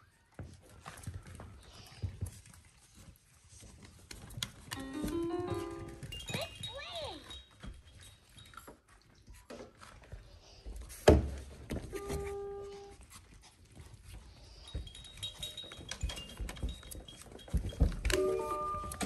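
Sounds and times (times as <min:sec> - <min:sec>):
puppies scuffling: 0:00.0 - 0:19.0
puppies panting: 0:12.9 - 0:18.1.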